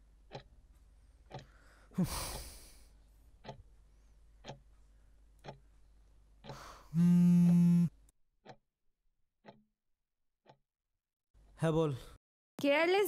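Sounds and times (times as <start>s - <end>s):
clock ticking: 0.0s - 2.7s, 3.3s - 3.8s, 4.4s - 5.8s, 6.4s - 7.8s, 9.4s - 9.6s
phone vibrating on a bed: 6.9s - 7.9s.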